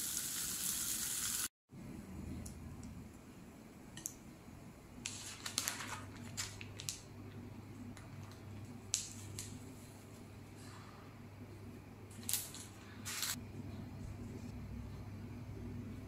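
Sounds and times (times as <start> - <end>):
crinkly rustling: 5.0 - 7.0
faint low hum: 6.4 - 16.0.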